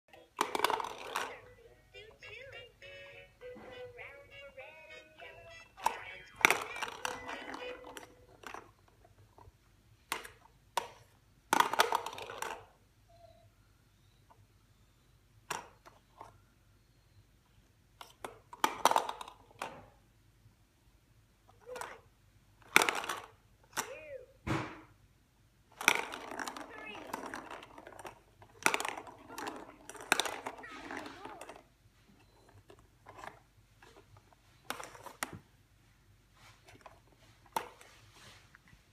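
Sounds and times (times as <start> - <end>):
plastic balls clicking and rattling: 0.2 - 2.4, 5.2 - 9.5, 10.1 - 12.8, 18.0 - 19.9, 21.5 - 24.0, 25.7 - 35.4.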